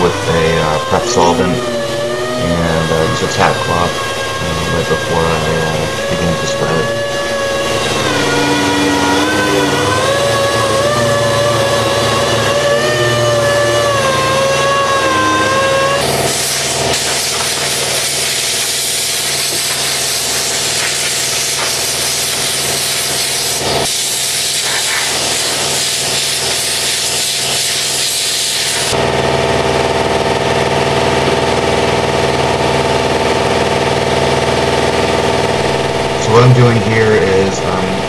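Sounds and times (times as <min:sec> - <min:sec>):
steady machine hum: 0:00.0 - 0:26.6, 0:28.6 - 0:38.0
compressed air hissing from blow gun: 0:16.2 - 0:29.0.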